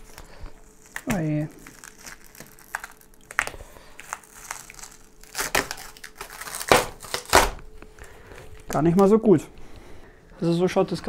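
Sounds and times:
paper and tape crinkling: 0.0s - 9.1s.

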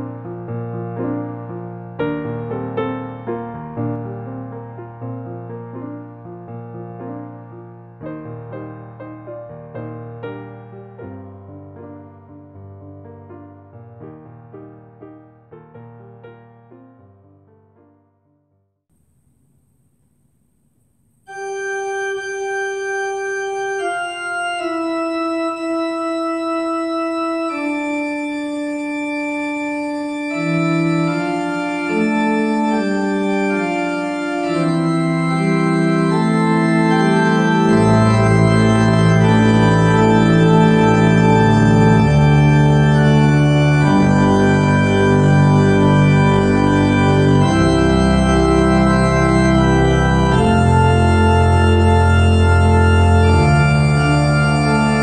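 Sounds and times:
slow sustained organ music: 0.0s - 12.5s, 19.0s - 55.0s
deep organ bass notes: 21.3s - 55.0s.

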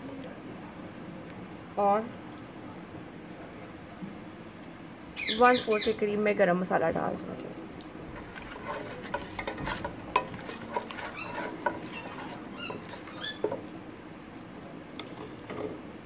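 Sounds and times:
spices sizzling in oil: 7.9s - 14.1s
wooden spoon scraping metal pot: 8.0s - 13.8s, 15.0s - 15.9s
short high squeaks: 11.1s - 13.6s.

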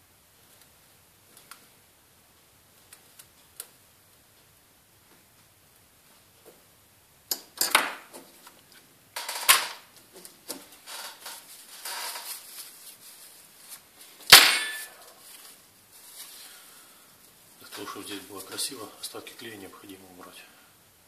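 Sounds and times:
paper tissue rustling: 10.6s - 18.9s.

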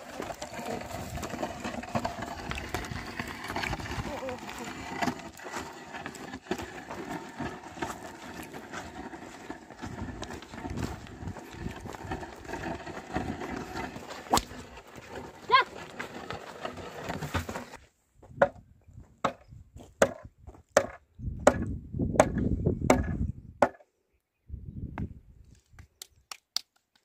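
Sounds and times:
plough scraping through soil: 0.0s - 17.8s.

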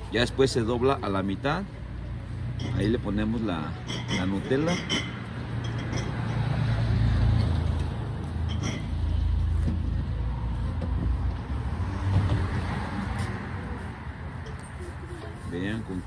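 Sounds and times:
street traffic rumble: 0.0s - 16.0s.

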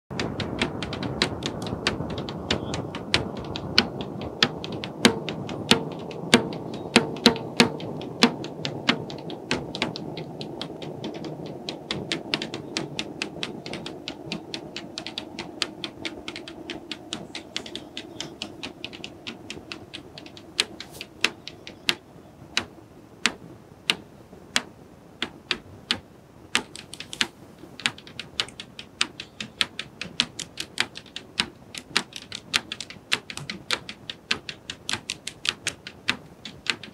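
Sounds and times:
sharp wooden knocks: 0.1s - 22.0s, 22.6s - 24.0s, 24.6s - 36.9s
low background haze: 0.1s - 36.9s.

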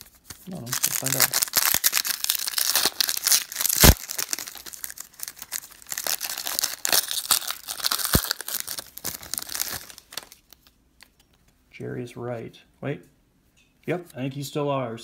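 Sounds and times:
wrapper tearing and crinkling: 0.0s - 10.7s
sharp wrapper cracks: 0.2s - 11.2s.

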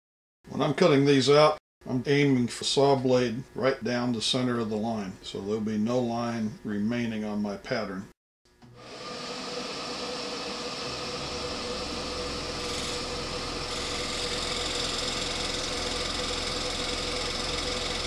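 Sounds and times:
scroll saw motor hum: 8.6s - 18.0s
saw blade cutting plastic: 10.7s - 18.0s.

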